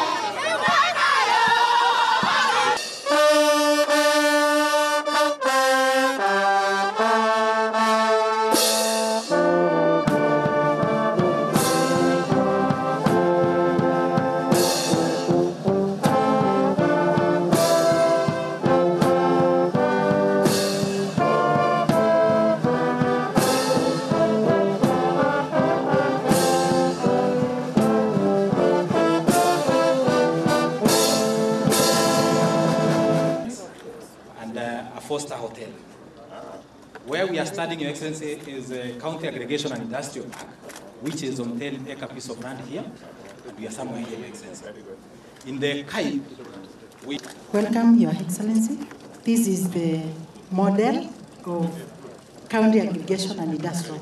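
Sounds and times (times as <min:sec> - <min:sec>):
brass band playing: 0:00.0 - 0:33.7.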